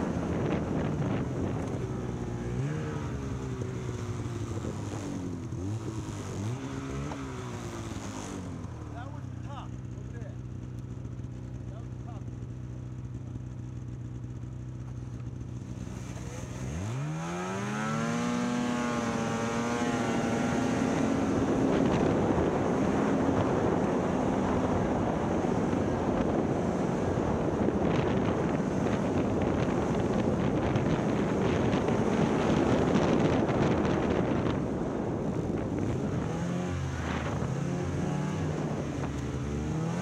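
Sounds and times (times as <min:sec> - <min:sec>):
wind noise: 0:00.0 - 0:07.6, 0:15.7 - 0:40.0
snowmobile engine revving: 0:00.0 - 0:10.2, 0:15.6 - 0:40.0
snowmobile track noise: 0:00.0 - 0:40.0.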